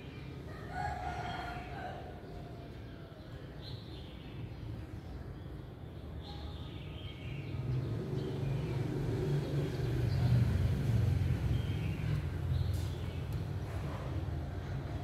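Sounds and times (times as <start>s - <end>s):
faint chicken calls: 0.5s - 3.2s
vehicle engine rumble: 7.6s - 15.0s.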